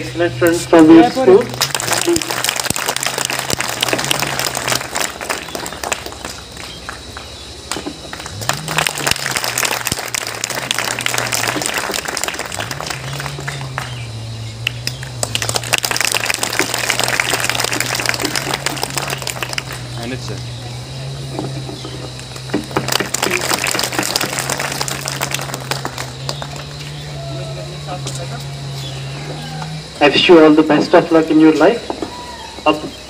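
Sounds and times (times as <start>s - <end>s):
steady low hum: 0.0s - 33.0s
audience applauding: 1.3s - 20.4s, 22.2s - 27.9s.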